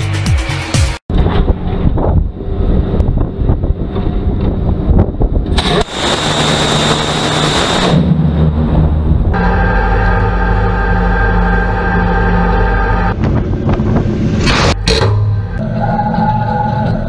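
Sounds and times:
wind on microphone: 0:01.1 - 0:09.4, 0:13.1 - 0:14.8.

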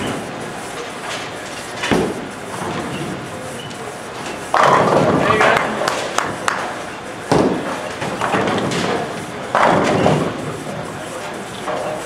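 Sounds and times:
bowling balls rolling: 0:04.4 - 0:10.9
bowling balls crashing into pins: 0:04.5 - 0:06.6, 0:07.3 - 0:10.8.

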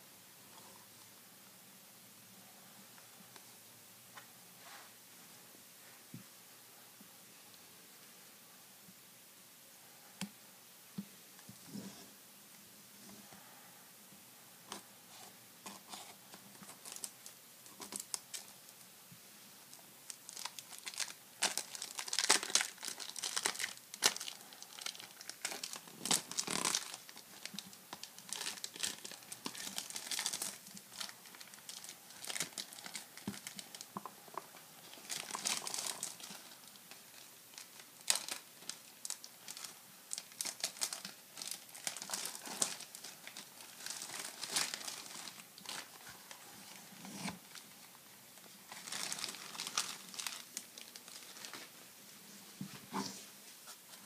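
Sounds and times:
cellophane wrap crinkling and tearing: 0:15.6 - 0:18.5, 0:20.1 - 0:34.0, 0:34.8 - 0:47.9, 0:48.7 - 0:51.7.

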